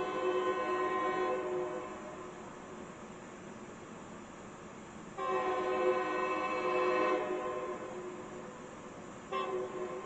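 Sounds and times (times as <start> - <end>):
locomotive air horn blast: 0.0 - 2.3, 5.2 - 8.5, 9.3 - 10.0.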